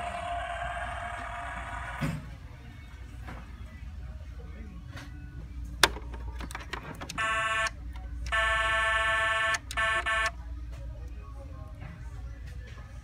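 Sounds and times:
toy horn honks: 7.2s - 7.7s, 8.3s - 10.3s.

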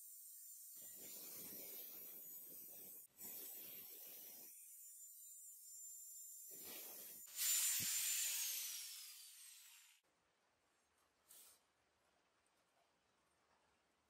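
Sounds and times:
angle grinder grinding steel: 0.0s - 10.0s.

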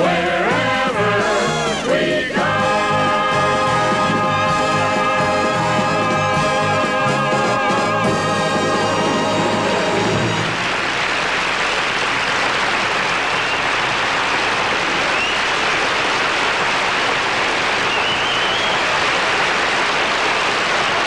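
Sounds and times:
audience applauding: 9.1s - 21.0s.

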